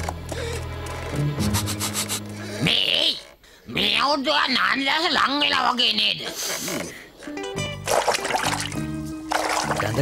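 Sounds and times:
cartoon background music: 0:00.0 - 0:03.2, 0:07.2 - 0:10.0.

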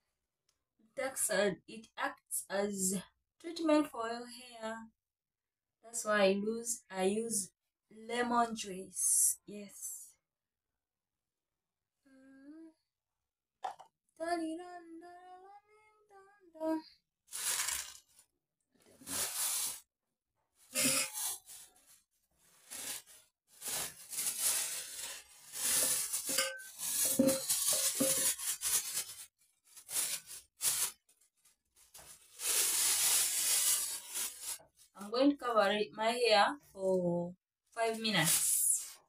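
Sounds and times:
person humming: 0:12.1 - 0:12.8.

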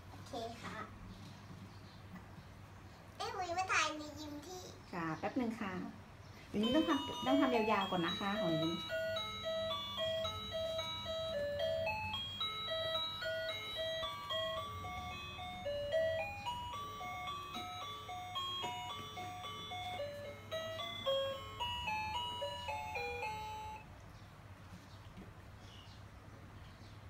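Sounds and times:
jingle-like tune of single notes: 0:06.6 - 0:23.8.

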